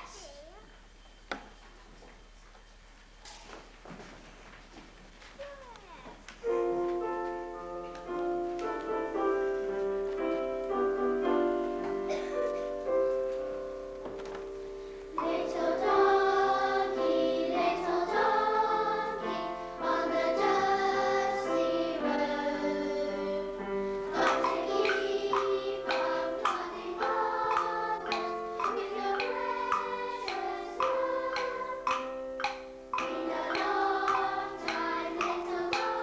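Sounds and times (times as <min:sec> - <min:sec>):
young children singing: 0:10.2 - 0:36.0.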